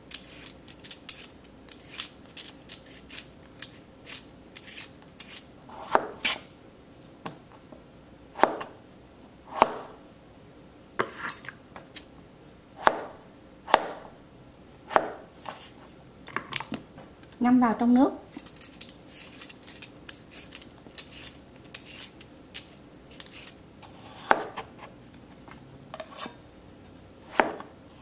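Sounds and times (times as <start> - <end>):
peeler scraping potato skin: 0.0 - 6.5, 18.8 - 24.9
knife cutting on cutting board: 2.8 - 6.4, 20.2 - 22.2, 23.1 - 24.9.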